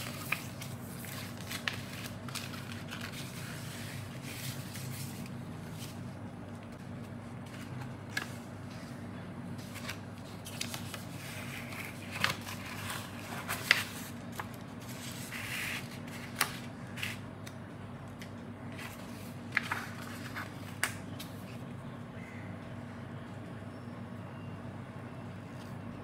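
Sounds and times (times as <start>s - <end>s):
paper rustling and crinkling: 0.0s - 8.9s, 9.6s - 17.2s, 18.7s - 21.6s
steady low hum: 0.0s - 26.0s.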